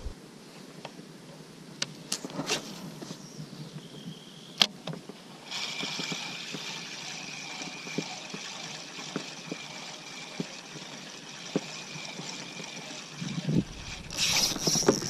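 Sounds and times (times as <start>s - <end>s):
fishing reel gears whirring: 5.4s - 15.0s.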